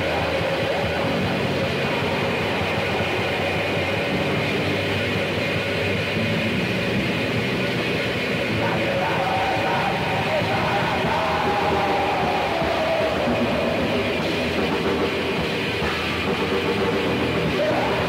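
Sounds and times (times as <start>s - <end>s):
distorted black metal guitar: 0.0s - 18.0s.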